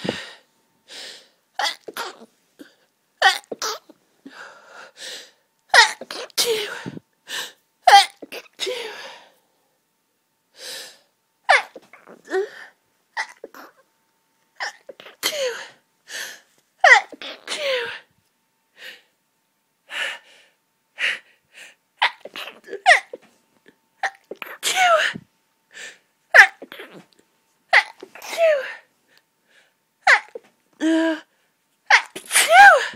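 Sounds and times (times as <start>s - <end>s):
person sneezing: 1.6s - 3.9s, 5.8s - 7.0s, 11.5s - 12.6s, 14.6s - 15.8s, 16.9s - 18.1s, 22.0s - 23.3s, 24.0s - 25.2s, 26.4s - 27.1s, 27.7s - 28.9s, 30.1s - 30.5s, 31.9s - 32.9s.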